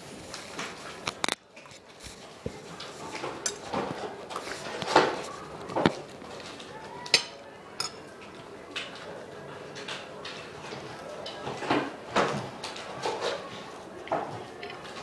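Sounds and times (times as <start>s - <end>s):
glassware and tableware clattering: 7.1s - 8.0s.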